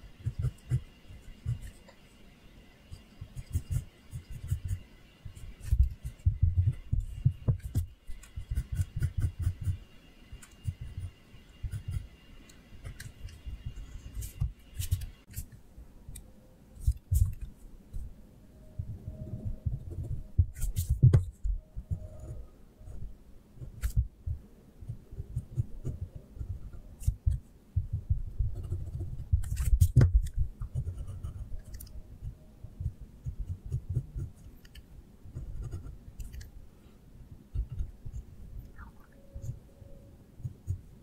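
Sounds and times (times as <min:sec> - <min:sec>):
pencil rubbing on paper: 0:05.4 - 0:09.8.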